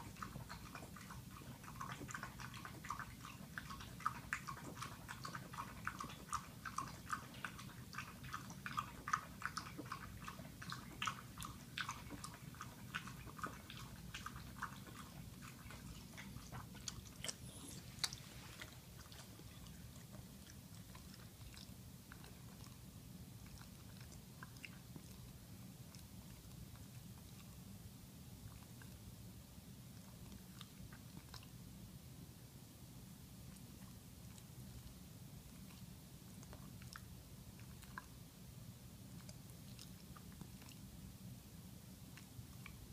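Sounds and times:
dog chewing food clicks: 0.0 - 27.6, 33.6 - 38.2.

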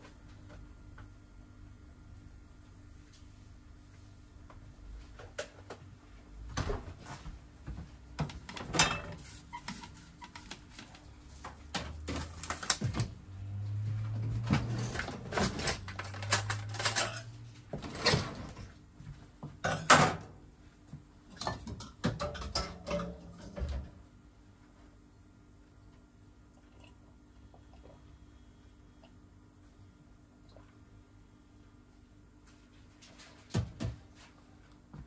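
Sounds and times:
cookware and utensils clinking: 8.7 - 9.3, 14.5 - 18.3, 19.6 - 20.3, 21.3 - 23.8.

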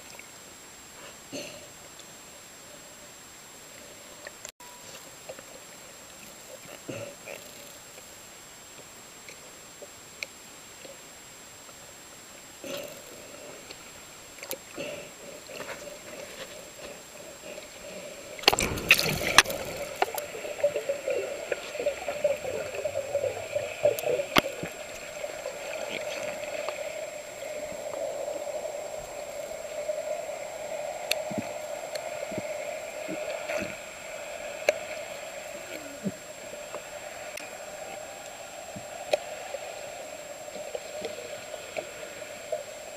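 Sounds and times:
water gurgling and sloshing: 12.6 - 42.9
water splashing: 12.6 - 42.9.

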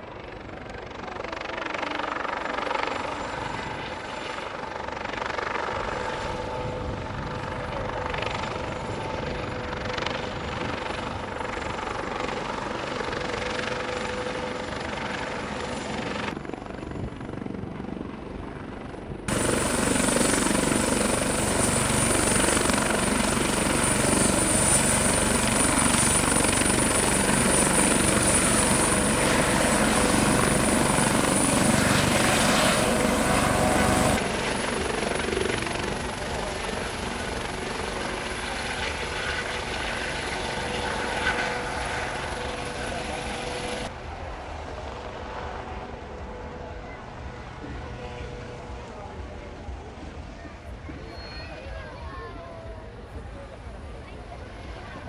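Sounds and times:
helicopter rotor: 0.0 - 55.0
high turbine whine: 18.8 - 51.7.

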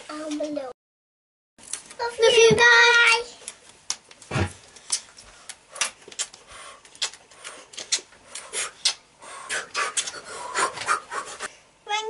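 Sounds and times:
children blowing kisses: 5.8 - 11.5.

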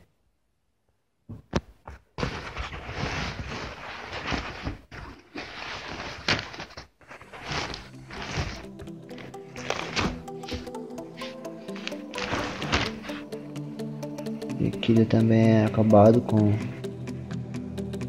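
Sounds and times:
fabric and plastic rustling: 1.5 - 13.2.

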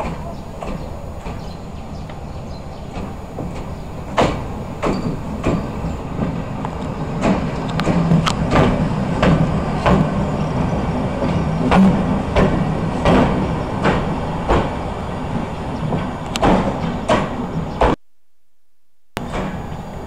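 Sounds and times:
wheels clicking over rail joint: 0.0 - 14.9
locomotive low hum: 0.0 - 18.0.

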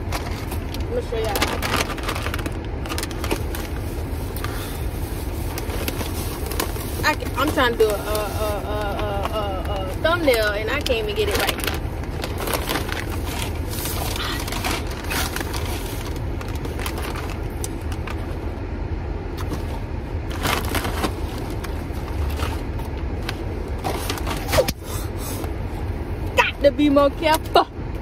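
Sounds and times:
car air conditioning fan: 0.0 - 28.0.

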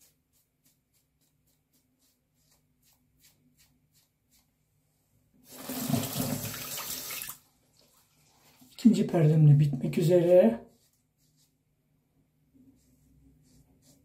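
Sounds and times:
tap running into sink: 5.6 - 7.0.

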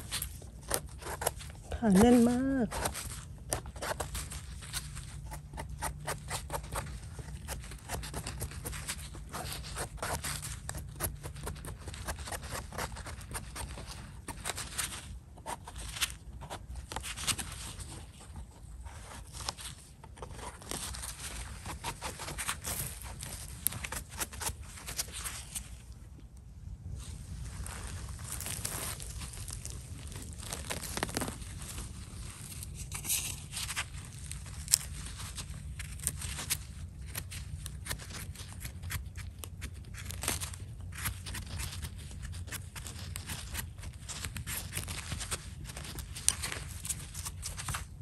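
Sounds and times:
knife scraping mushroom stem: 0.0 - 25.8.

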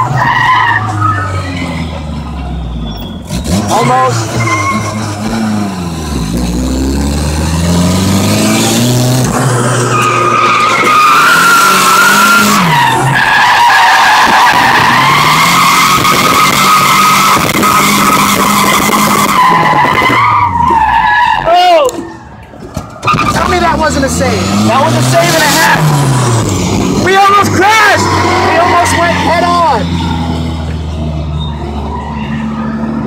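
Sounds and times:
tyres squealing: 0.0 - 5.3, 9.3 - 26.4, 27.0 - 30.3
car engine revving: 0.0 - 21.1, 23.0 - 33.0.

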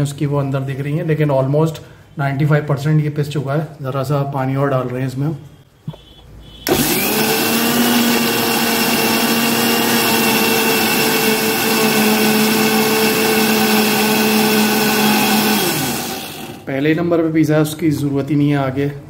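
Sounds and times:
mixer grinder motor whirring: 6.6 - 16.7.

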